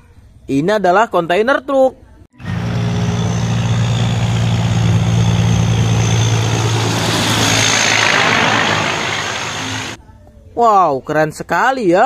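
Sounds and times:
diesel truck engine drone: 2.4s - 10.0s
tyre and road noise: 2.4s - 10.0s.

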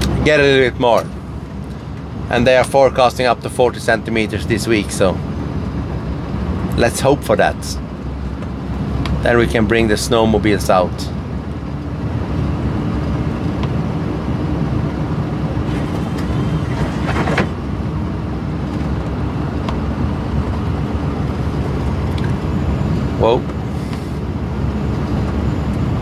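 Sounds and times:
truck engine rumbling: 0.0s - 26.0s
plow pushing through snow: 15.6s - 17.6s
windshield wiper sweeping: 15.7s - 17.6s.

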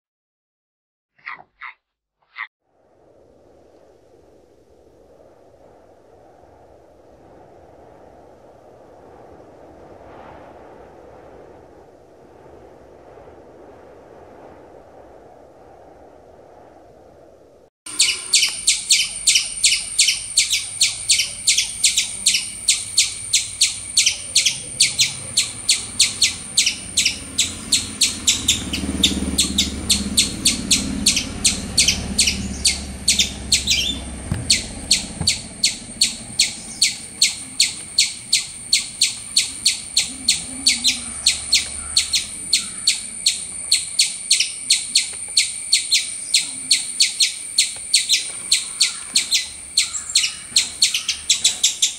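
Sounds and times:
low rumble: 2.6s - 45.2s
high sharp chirping call: 17.9s - 51.9s.

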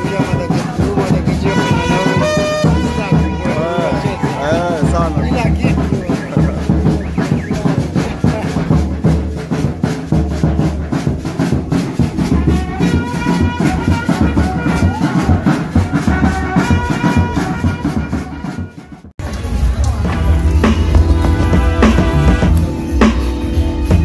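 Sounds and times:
upbeat music with heavy bass: 0.0s - 9.6s, 19.2s - 24.0s.

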